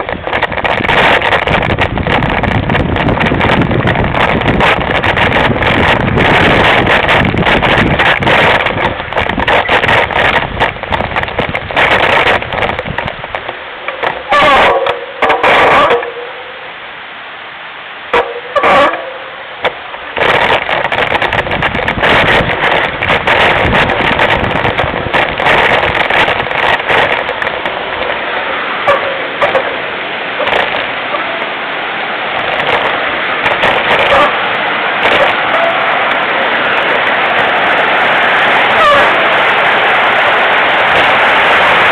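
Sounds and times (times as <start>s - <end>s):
wind rushing: 0.0s - 15.9s, 20.0s - 41.9s
sharp knocks: 0.0s - 16.1s
mountain bike rattling and clattering: 0.0s - 16.2s, 18.2s - 29.8s, 32.3s - 41.9s
tyre noise on trail: 0.0s - 41.9s.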